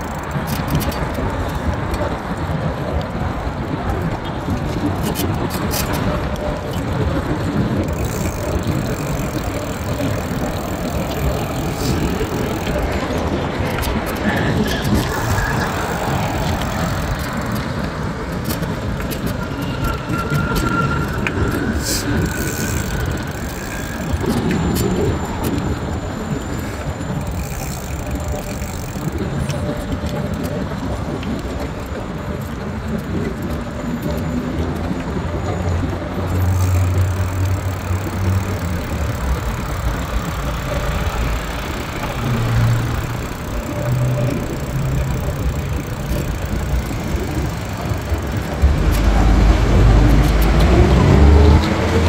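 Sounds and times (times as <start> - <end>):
cars passing: 0.0 - 52.0
rising whine: 36.3 - 52.0.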